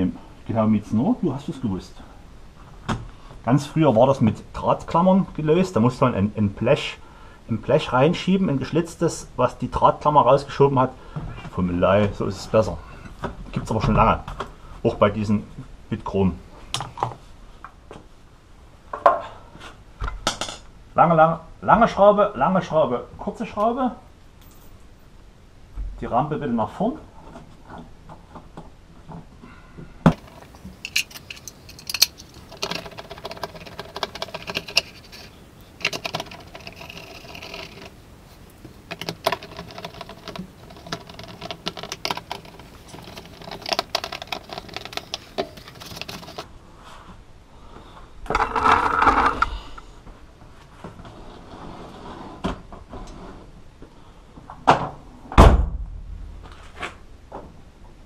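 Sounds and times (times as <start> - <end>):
screwdriver driving screws: 30.1 - 38.0
plastic trim clicking and scraping: 30.1 - 46.5.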